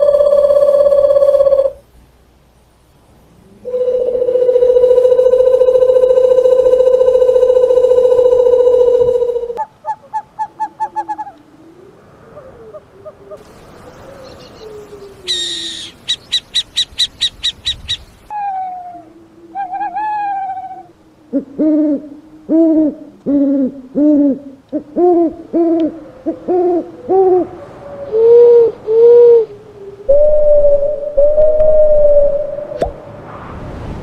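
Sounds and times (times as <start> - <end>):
owl drawn-out bending calls: 0.0 - 1.8, 3.4 - 32.9
owl wavering whistle: 0.0 - 1.8, 3.6 - 11.8, 14.0 - 24.4, 25.0 - 33.0
owl high sharp notes: 3.6 - 9.6.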